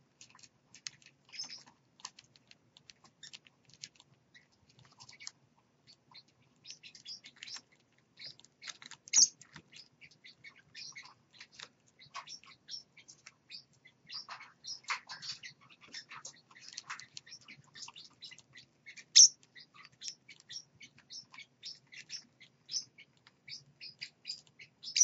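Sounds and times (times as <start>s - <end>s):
soft bird chirps: 0.2s - 25.0s.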